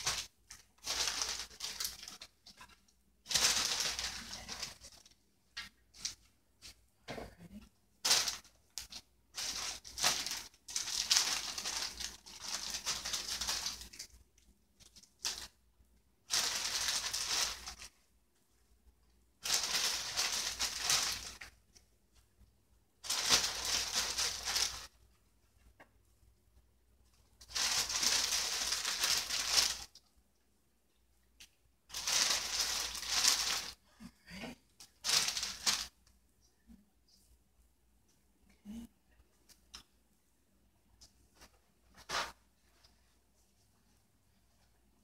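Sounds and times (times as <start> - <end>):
plastic bag crinkling: 0.0 - 5.2, 8.0 - 14.2, 14.8 - 15.6, 16.3 - 17.9, 19.4 - 21.6, 23.0 - 25.0, 27.4 - 30.0, 31.9 - 33.8, 34.8 - 36.0.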